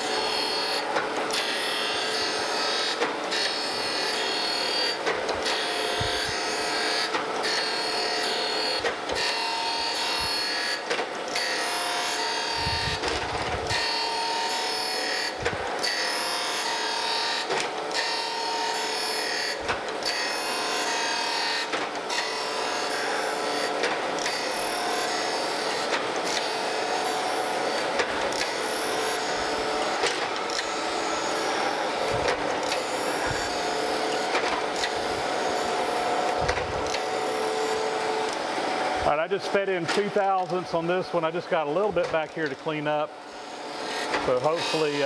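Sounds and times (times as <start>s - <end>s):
surface grinder grinding metal: 0.0s - 45.0s.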